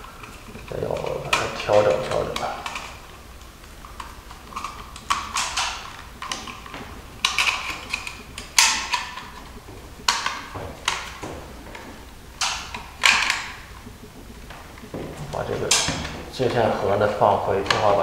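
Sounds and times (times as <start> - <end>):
wires clacking in plastic box: 0.0 - 18.0.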